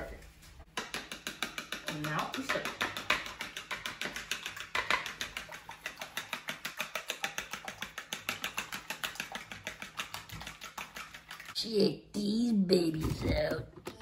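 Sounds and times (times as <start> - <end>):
fork whisking eggs in bowl: 0.6 - 11.6.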